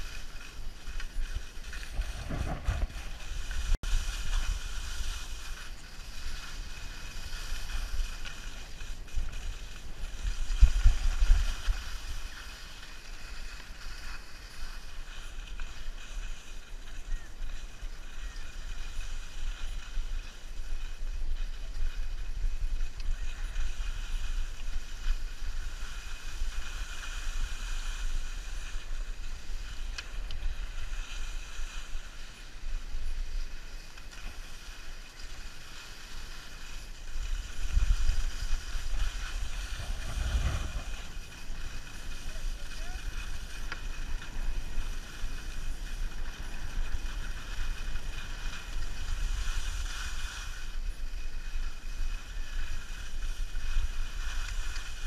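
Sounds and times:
skis sliding over packed snow: 0.0s - 55.0s
wind buffeting microphone: 0.6s - 6.8s, 37.0s - 49.0s.

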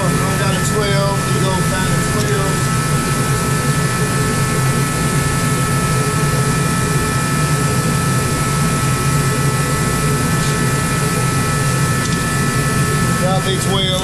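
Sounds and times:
machine drone with high tones: 0.0s - 14.0s.

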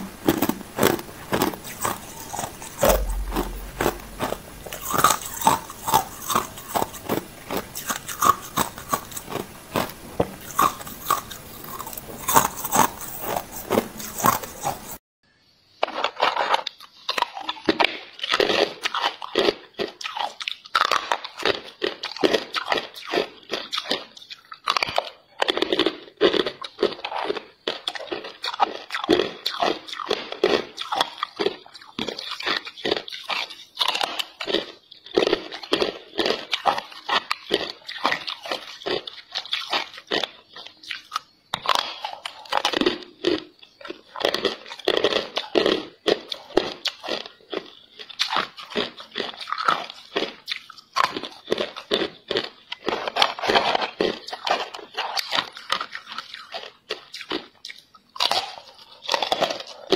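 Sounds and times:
crunching ice chunks: 0.3s - 14.8s.

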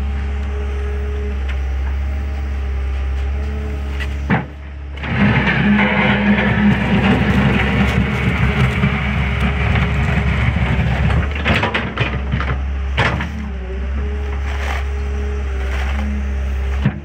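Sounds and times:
excavator diesel engine under load: 0.0s - 17.0s
metal knocks and scrapes: 4.0s - 13.4s.

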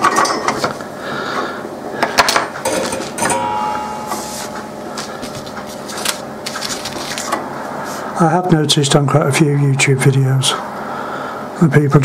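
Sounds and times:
brief ringing tone: 2.7s - 5.2s.

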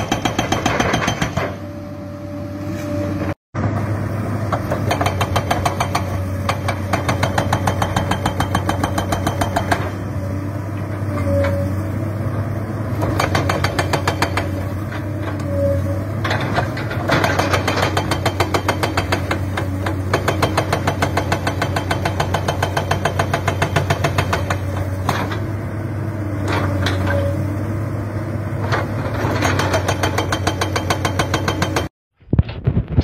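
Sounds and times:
hydraulic breaker hammering rock: 0.0s - 1.6s, 4.5s - 10.0s, 13.0s - 14.7s, 16.3s - 25.4s, 28.8s - 31.9s
diesel engine drone: 1.4s - 7.9s, 8.7s - 17.2s, 23.2s - 29.6s.

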